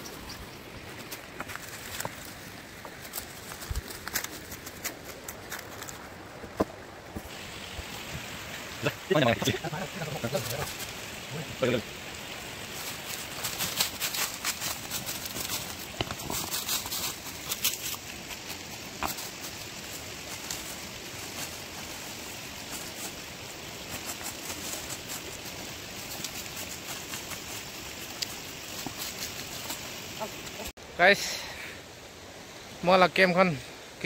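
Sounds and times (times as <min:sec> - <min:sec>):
dry leaves crackling: 0:00.0 - 0:06.6, 0:07.2 - 0:30.7
river water flowing: 0:00.0 - 0:34.0.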